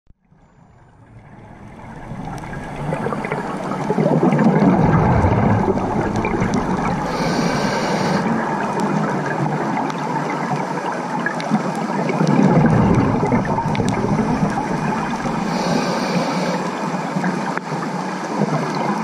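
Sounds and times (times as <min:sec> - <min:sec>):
bubbles gurgling underwater: 0:00.2 - 0:19.0
faint crackling clicks: 0:00.7 - 0:10.5, 0:11.3 - 0:15.9
regulator inhalation hiss: 0:06.9 - 0:08.3, 0:15.4 - 0:16.8.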